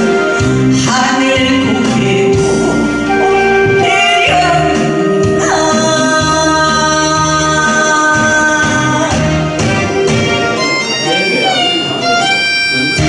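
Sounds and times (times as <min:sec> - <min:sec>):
instrumental backing with low beat: 0:00.0 - 0:13.0
woman singing into microphone: 0:00.1 - 0:09.9.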